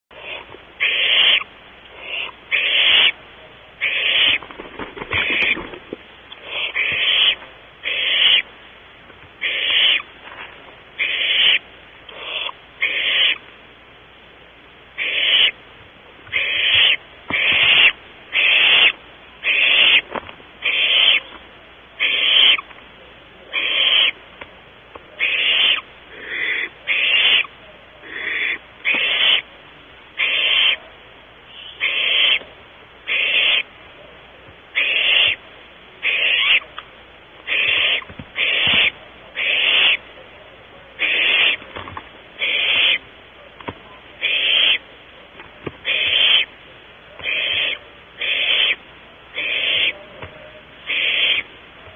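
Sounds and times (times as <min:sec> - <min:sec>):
owl nestlings rasping hiss: 0:00.1 - 0:03.2, 0:03.8 - 0:04.4, 0:06.3 - 0:08.6, 0:09.4 - 0:13.5, 0:15.0 - 0:15.6, 0:16.3 - 0:21.4, 0:22.0 - 0:22.7, 0:23.5 - 0:24.2, 0:25.1 - 0:29.5, 0:30.1 - 0:30.9, 0:31.5 - 0:33.7, 0:34.7 - 0:35.4, 0:36.0 - 0:36.8, 0:37.4 - 0:40.2, 0:40.9 - 0:41.7, 0:42.4 - 0:43.1, 0:44.2 - 0:44.9, 0:45.8 - 0:46.6, 0:47.2 - 0:50.0, 0:50.8 - 0:51.5.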